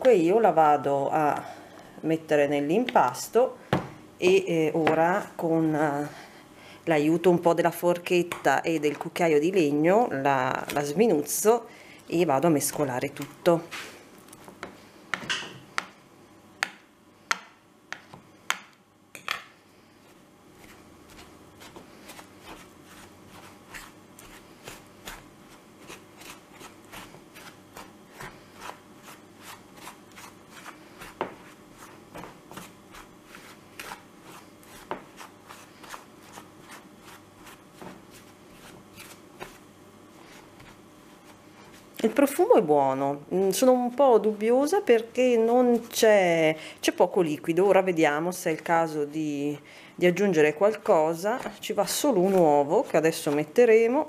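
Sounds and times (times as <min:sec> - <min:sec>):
scraping and stirring in bowl: 0:19.2 - 0:42.2.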